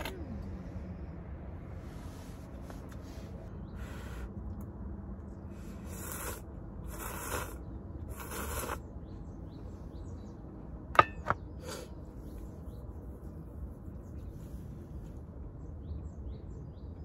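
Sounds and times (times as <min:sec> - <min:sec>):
noodles slurped from metal cup: 0:05.9 - 0:08.8
metal cup clinking: 0:11.0 - 0:11.4.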